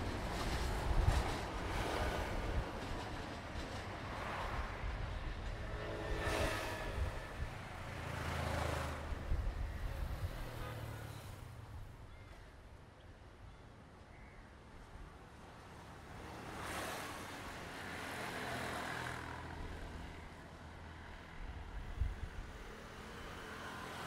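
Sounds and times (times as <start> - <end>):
diesel train engine rumble: 0.0 - 6.2.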